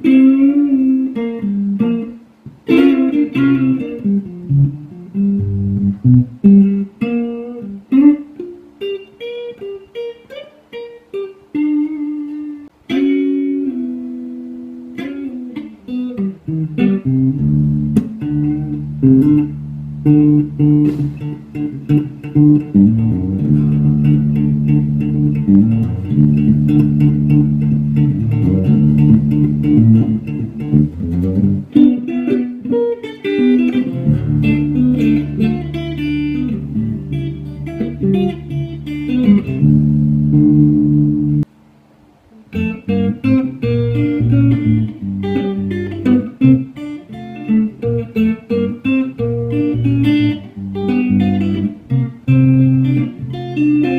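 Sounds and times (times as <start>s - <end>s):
electric guitar melody: 0.0s - 41.5s, 42.3s - 53.9s.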